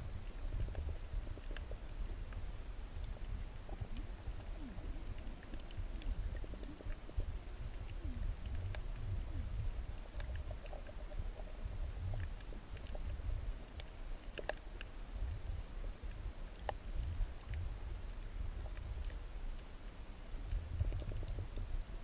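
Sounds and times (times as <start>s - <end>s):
low underwater rumble: 0.0s - 22.0s
sharp clicks and crackles: 3.0s - 15.0s, 16.0s - 19.7s, 20.4s - 21.8s.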